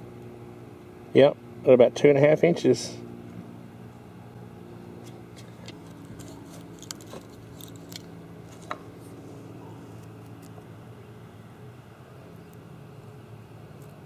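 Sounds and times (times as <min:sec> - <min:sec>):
steady low hum: 0:00.0 - 0:14.0
fingers clicking and scratching wood: 0:05.4 - 0:08.8.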